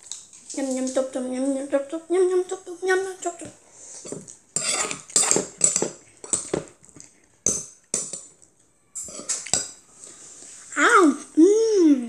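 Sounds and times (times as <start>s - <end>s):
metal spoon scraping in a bowl: 4.0s - 6.5s.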